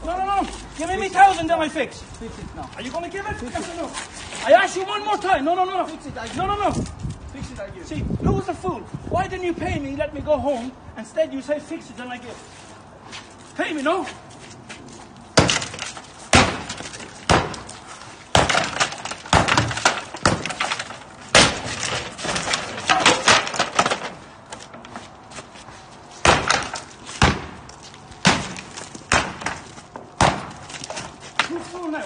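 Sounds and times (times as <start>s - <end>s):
heavy blows on wooden fence: 15.4s - 25.0s, 26.2s - 31.8s
timber cracking and splintering: 15.4s - 25.0s, 26.2s - 32.0s.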